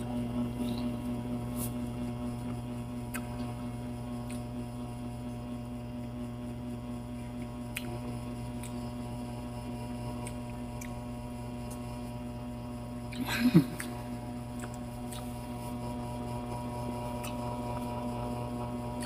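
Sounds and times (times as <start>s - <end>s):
low electrical hum: 0.0s - 19.0s
wet mouth clicks chewing: 3.1s - 3.5s, 7.2s - 8.9s, 10.2s - 11.9s, 13.7s - 15.5s, 17.1s - 17.6s.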